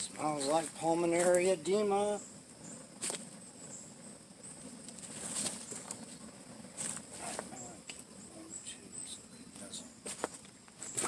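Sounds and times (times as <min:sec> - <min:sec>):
high-pitched insect trill: 0:00.0 - 0:11.0
loud rustling bursts: 0:00.4 - 0:07.6.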